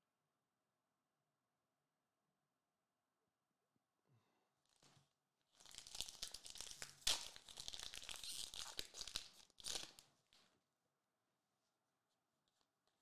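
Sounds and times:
foil wrapper tearing and crackling: 0:05.6 - 0:10.0.

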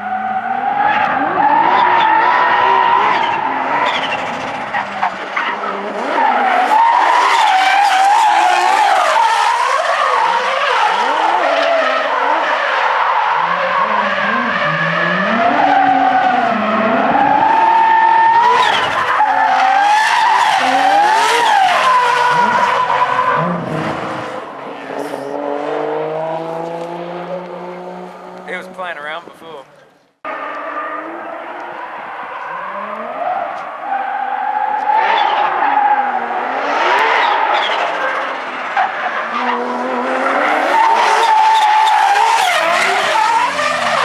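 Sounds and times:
tyres skidding and squealing: 0:00.0 - 0:44.0
car engine revving hard: 0:13.4 - 0:28.8, 0:35.0 - 0:44.0.

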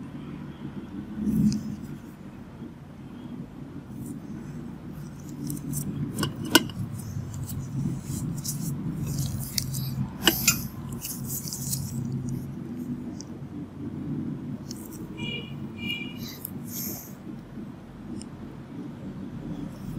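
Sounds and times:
steady low hum: 0:00.0 - 0:19.9
hands handling tools: 0:05.1 - 0:12.4.

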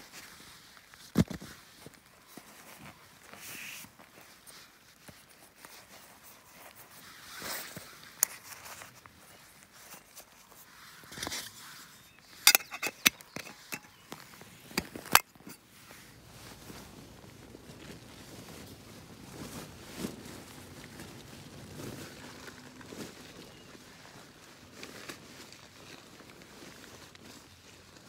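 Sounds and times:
quilt rustling: 0:01.6 - 0:28.0
sharp clicks and knocks: 0:12.4 - 0:15.6.

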